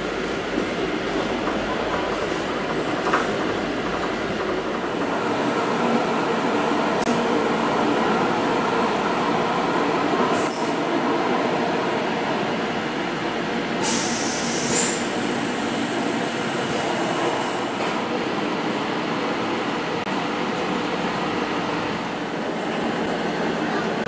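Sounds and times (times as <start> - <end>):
train wheels rumbling on rails: 0.0 - 24.0
rushing hiss: 13.8 - 16.1.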